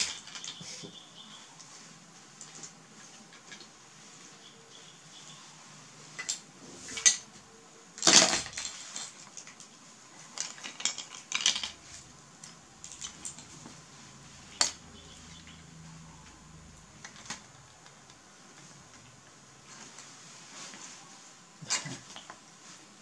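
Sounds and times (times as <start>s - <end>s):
hard objects clattering: 8.0s - 15.6s
rustling: 8.0s - 23.0s.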